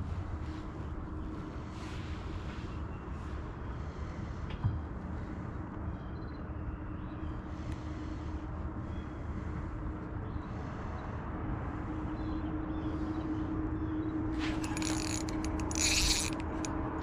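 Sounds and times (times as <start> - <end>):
low hum with faint drone: 0.0 - 17.0
fishing tackle clicking and rattling: 14.4 - 16.7.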